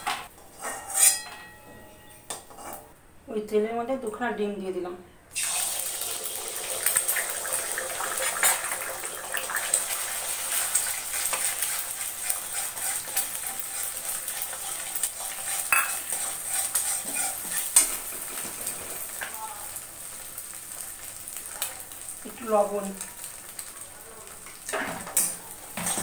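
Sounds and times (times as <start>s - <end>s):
metal spatula scraping pan: 0.0s - 2.9s, 10.5s - 19.2s, 24.6s - 26.0s
eggs sizzling in oil: 5.3s - 26.0s.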